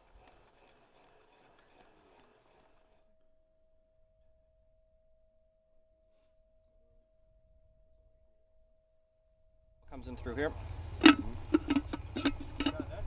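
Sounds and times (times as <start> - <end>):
faint steady pure tone: 3.0 - 13.0.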